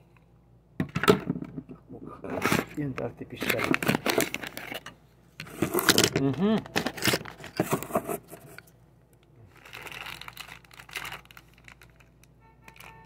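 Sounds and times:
plastic bag crinkling: 9.5 - 13.0.

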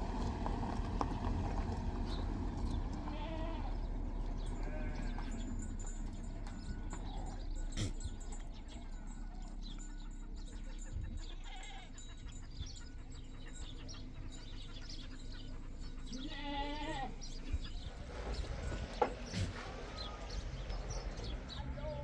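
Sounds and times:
low background rumble: 0.0 - 22.0
goat bleating: 3.0 - 3.9, 4.5 - 5.3, 11.5 - 12.0, 16.1 - 17.2, 21.6 - 22.0.

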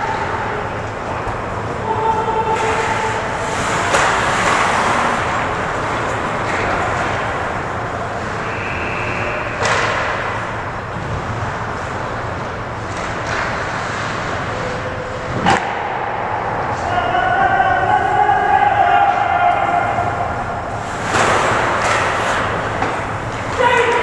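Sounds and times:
skating and play noise in arena: 0.0 - 24.0
sharp hockey impacts: 2.0 - 7.6, 8.2 - 11.6, 12.8 - 17.0, 19.0 - 24.0.

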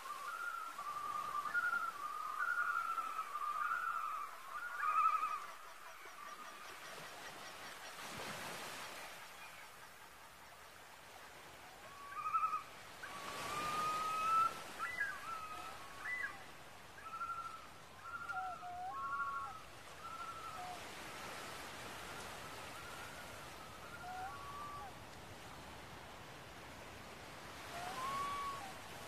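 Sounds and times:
loons calling: 0.0 - 7.5, 11.8 - 21.6, 22.2 - 25.0, 27.6 - 28.8.

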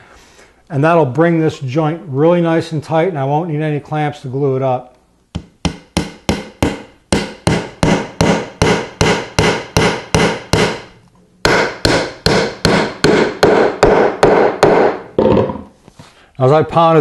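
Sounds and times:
hammer striking wooden pegs: 5.3 - 15.6.

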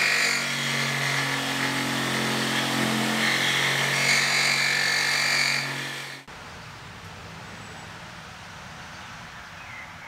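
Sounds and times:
jigsaw cutting wood: 0.0 - 6.3.

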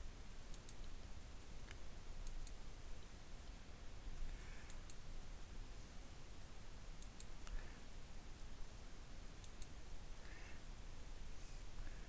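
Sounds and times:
faint steady hiss: 0.0 - 12.0
computer mouse clicks: 0.5 - 0.9, 1.6 - 2.6, 4.2 - 5.0, 7.0 - 7.6, 9.4 - 9.8.

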